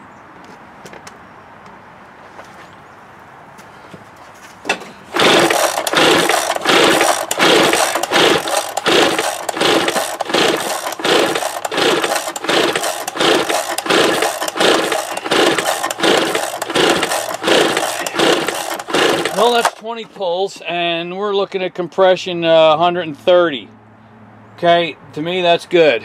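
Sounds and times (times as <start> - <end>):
pull-start rope cranking engine: 5.1 - 19.8.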